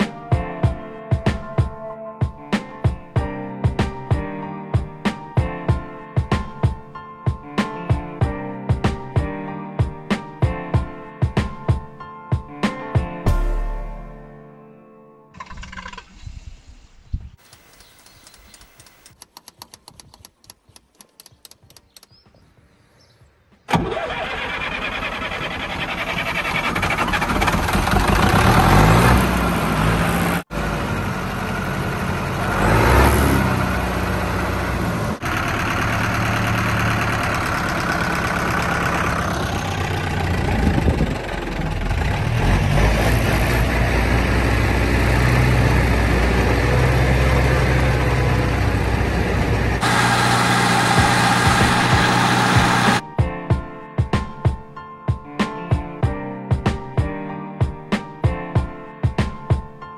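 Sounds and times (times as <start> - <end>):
diesel tractor engine running: 23.7 - 53.0.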